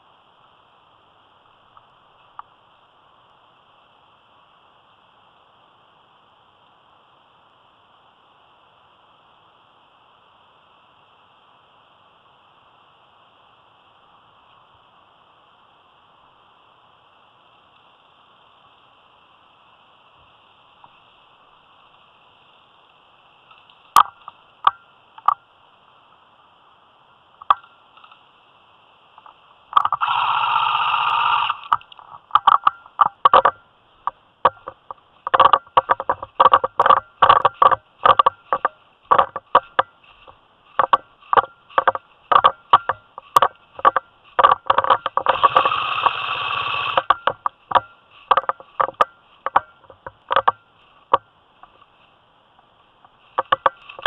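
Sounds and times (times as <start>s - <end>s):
airsoft gun full-auto bursts: 30.0s - 31.8s, 45.2s - 47.2s.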